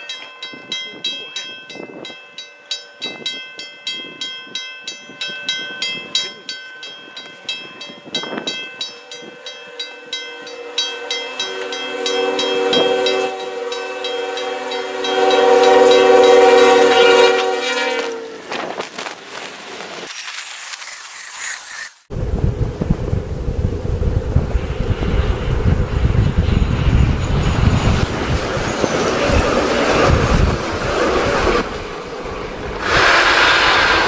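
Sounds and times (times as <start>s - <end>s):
level crossing bell ringing: 0.0s - 16.4s
train passing through snow: 0.0s - 34.0s
locomotive air horn: 10.4s - 18.6s, 32.8s - 34.0s
snow spray hitting microphone: 18.5s - 22.1s, 32.8s - 34.0s.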